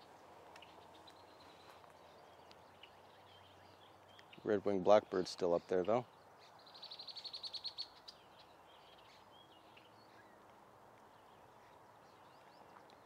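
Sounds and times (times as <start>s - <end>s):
faint bird chirps: 0.0s - 4.6s, 5.5s - 10.5s
outdoor background noise: 0.0s - 13.0s
songbird rapid high trill: 2.7s - 10.3s.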